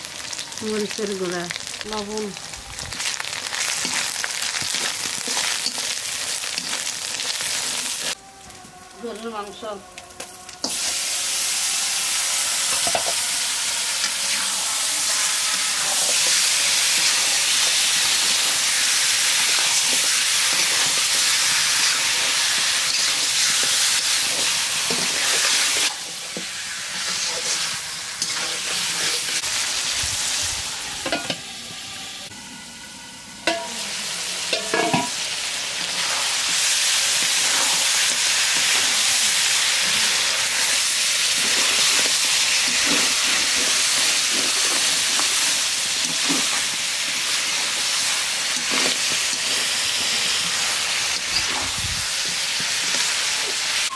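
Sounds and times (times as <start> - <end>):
meat sizzling in hot oil: 0.0 - 8.2, 10.2 - 53.9
metal spatula scraping a pan: 19.3 - 29.5, 41.3 - 53.1.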